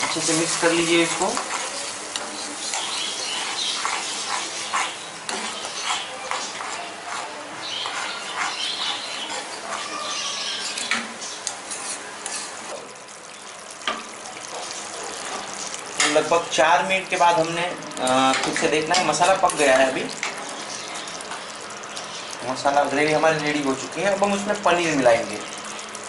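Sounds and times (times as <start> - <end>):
spoon scraping steel pan: 0.0 - 10.9, 11.7 - 12.6
gravy sizzling: 0.0 - 26.0.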